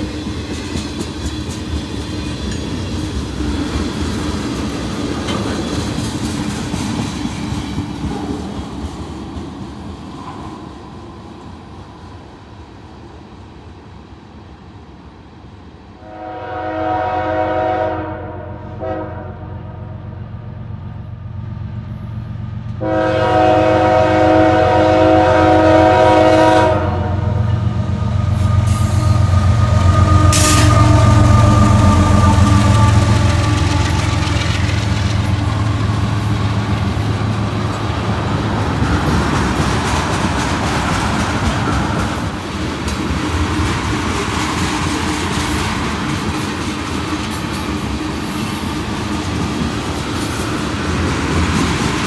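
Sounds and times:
freight cars rumbling on rails: 0:00.0 - 0:52.0
locomotive air horn blasts: 0:16.0 - 0:19.9, 0:22.8 - 0:27.6, 0:28.4 - 0:34.1
locomotive low rumble: 0:26.8 - 0:40.0.

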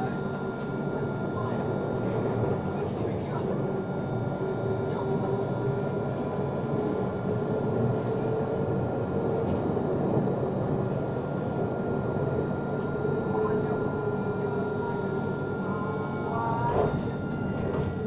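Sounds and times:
tram wheels on rails: 0:04.7 - 0:12.5, 0:16.6 - 0:18.0.

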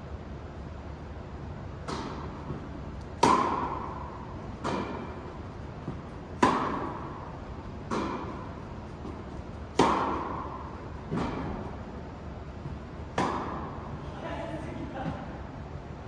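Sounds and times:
tennis ball hit by rackets: 0:01.8 - 0:11.8, 0:12.6 - 0:14.0.

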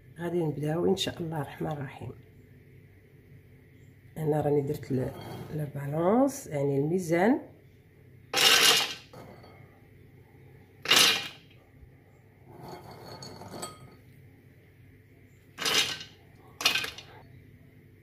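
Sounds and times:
almonds clattering in metal bowl: 0:08.4 - 0:09.1, 0:10.8 - 0:11.5, 0:15.6 - 0:17.2.

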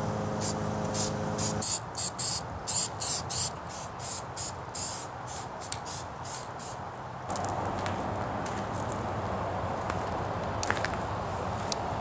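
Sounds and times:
spray can hissing: 0:00.4 - 0:06.8.

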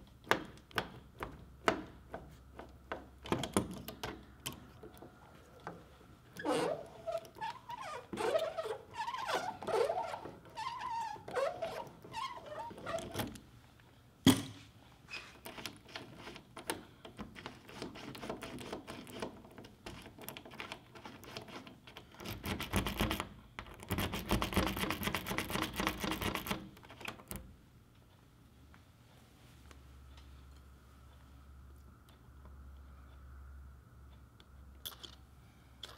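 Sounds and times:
metal squeaking: 0:06.4 - 0:13.2.

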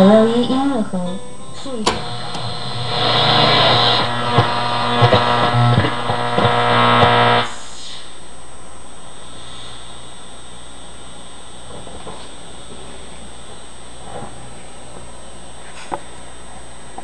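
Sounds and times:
distorted guitar music on radio: 0:00.0 - 0:08.0, 0:09.2 - 0:16.1
radio static hiss: 0:00.0 - 0:17.0
radio crackles and whistles: 0:01.6 - 0:08.2.

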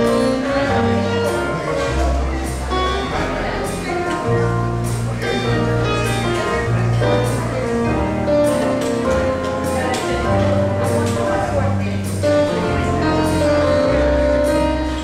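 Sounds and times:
electronic keyboard melody: 0:00.0 - 0:15.0.

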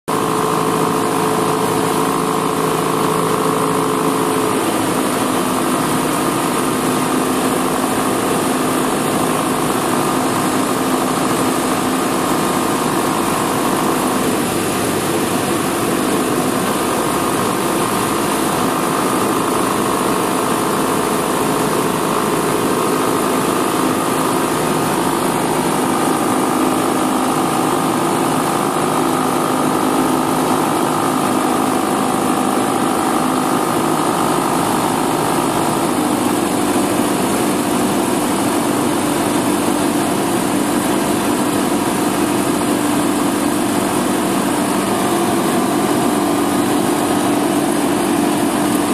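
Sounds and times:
propeller aircraft engine running: 0:00.1 - 0:48.9.

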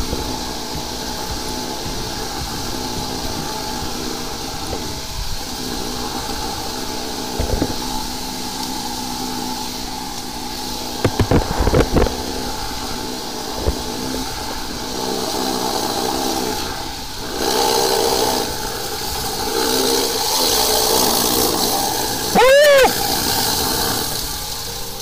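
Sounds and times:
engine and pump running: 0:00.0 - 0:25.0
sharp knocks: 0:11.0 - 0:12.2.

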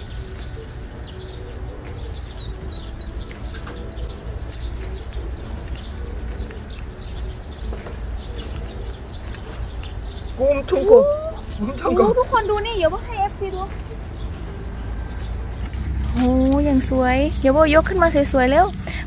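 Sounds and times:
small bird chirping: 0:00.0 - 0:14.3
steady low rumble: 0:00.0 - 0:19.0.

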